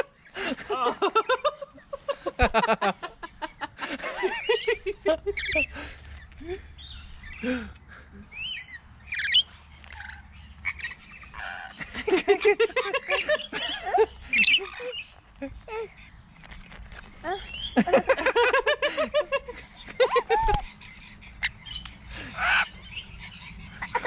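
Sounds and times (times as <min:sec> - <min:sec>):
parrots chirping and screeching: 0:03.2 - 0:24.0.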